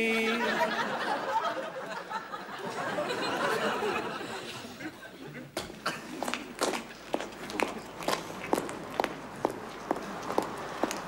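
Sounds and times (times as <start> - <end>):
studio audience laughing: 0.1 - 5.5
footsteps on pavement: 6.2 - 11.0.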